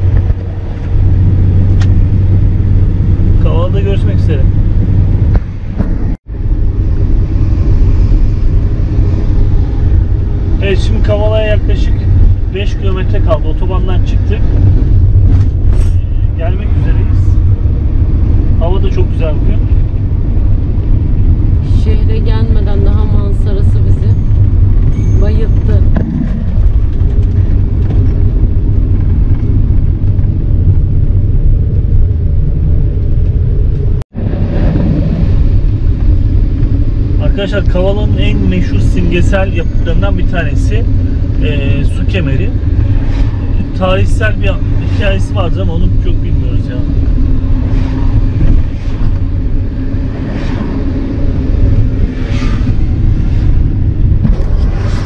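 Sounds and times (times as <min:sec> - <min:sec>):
van engine and tyres rumbling: 0:00.0 - 0:55.0.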